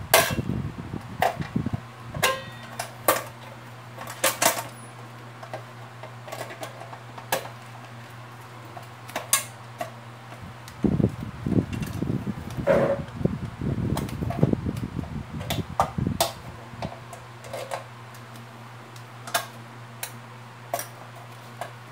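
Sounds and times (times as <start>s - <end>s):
steady low hum: 0.0s - 21.9s.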